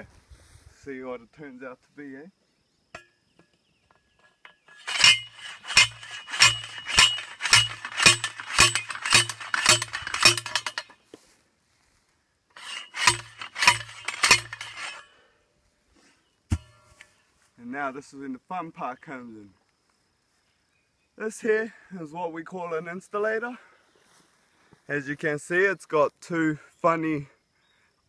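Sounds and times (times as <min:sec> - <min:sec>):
post driver clanking on metal post: 0:03.0 - 0:10.9, 0:12.6 - 0:15.0.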